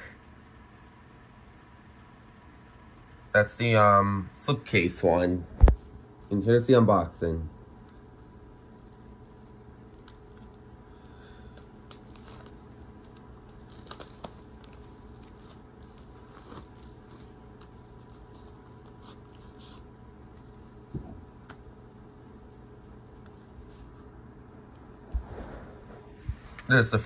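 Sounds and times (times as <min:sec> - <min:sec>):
steady low hum: 0:00.0 - 0:27.0
small clicks of packaging: 0:11.5 - 0:15.4
packaging rustling: 0:11.6 - 0:20.6.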